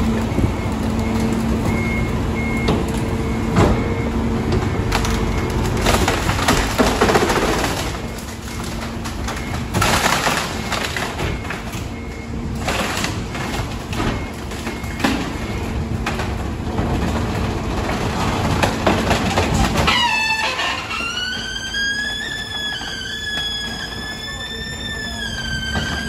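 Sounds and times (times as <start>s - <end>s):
truck engine and hydraulics hum: 0.0s - 26.0s
wooden boards cracking and splintering: 4.9s - 11.9s
rising squeal: 19.9s - 26.0s.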